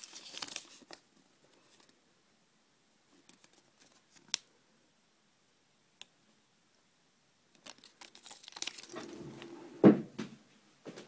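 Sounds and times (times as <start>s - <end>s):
foil wrapper crinkling and tearing: 0.0s - 1.0s, 7.6s - 9.0s.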